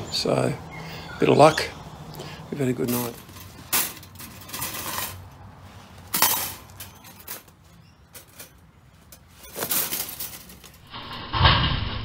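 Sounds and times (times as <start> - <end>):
metallic clatter: 3.0 - 5.2, 6.1 - 12.0
wire mesh cage rattling: 9.4 - 11.7.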